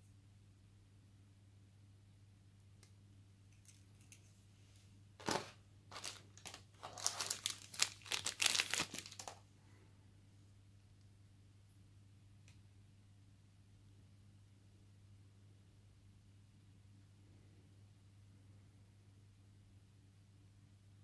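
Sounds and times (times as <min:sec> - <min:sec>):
plastic bag crinkling: 0:05.2 - 0:09.4.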